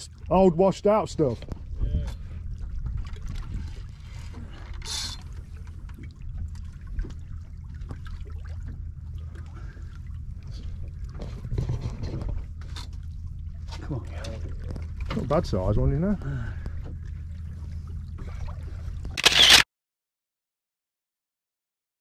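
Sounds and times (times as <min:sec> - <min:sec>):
water lapping against boat hull: 0:00.0 - 0:19.2
steady low rumble: 0:00.0 - 0:19.3
small water splashes: 0:01.5 - 0:11.7, 0:16.3 - 0:19.2.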